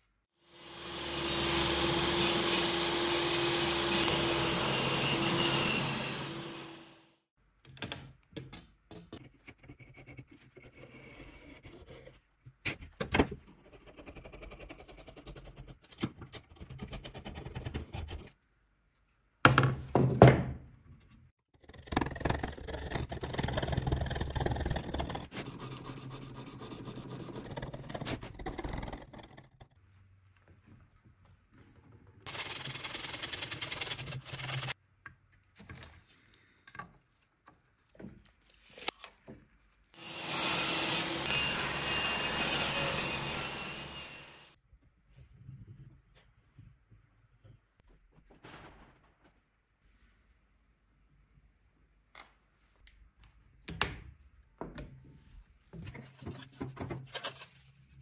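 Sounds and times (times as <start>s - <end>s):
blade scraping along wood: 0.6s - 7.0s, 21.8s - 29.8s, 32.3s - 34.8s, 40.0s - 44.6s.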